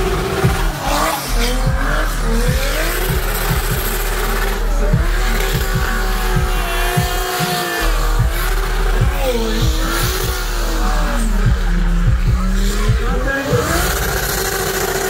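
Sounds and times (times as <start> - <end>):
engine revving at high revs: 0.0 - 15.0.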